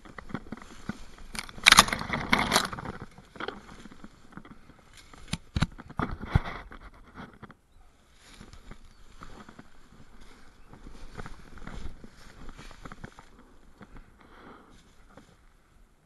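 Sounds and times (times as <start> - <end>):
footsteps in dry leaves: 0.0 - 5.5, 8.0 - 13.9
twigs snapping: 0.0 - 7.6.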